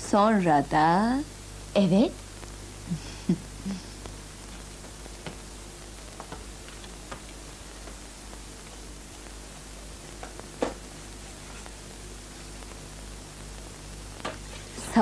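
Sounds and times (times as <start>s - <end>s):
steady hiss and hum: 0.0s - 15.0s
books knocking on wooden shelf: 10.6s - 10.8s.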